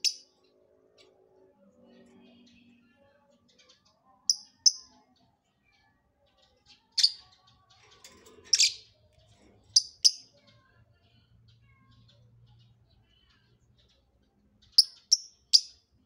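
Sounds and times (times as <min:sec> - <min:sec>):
lovebird shrill chirps: 0:04.3 - 0:04.9.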